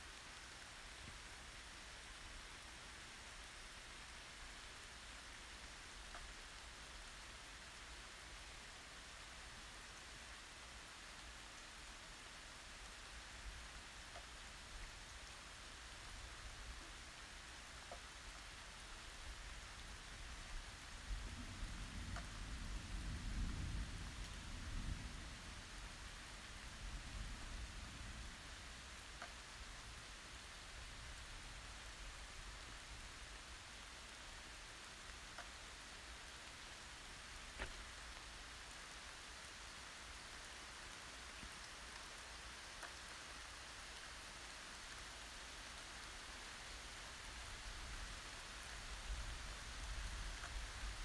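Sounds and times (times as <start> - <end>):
steady rain hiss: 0.0 - 51.0.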